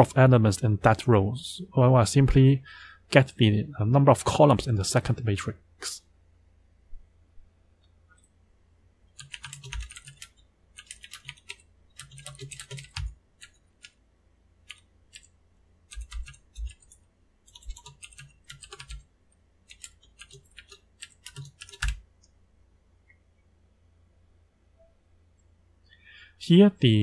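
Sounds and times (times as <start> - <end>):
computer keyboard typing: 9.2 - 14.0, 14.6 - 15.3, 15.9 - 22.0.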